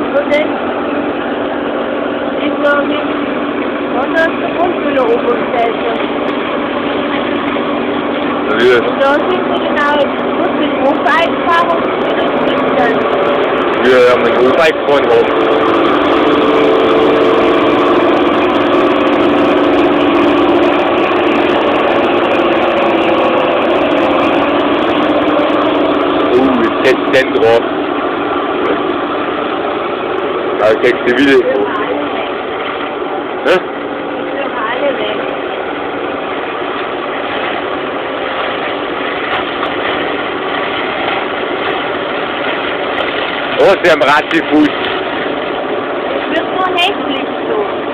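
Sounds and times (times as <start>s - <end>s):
mower cutting a hedge: 0.0s - 47.9s
tractor engine droning: 0.0s - 47.9s.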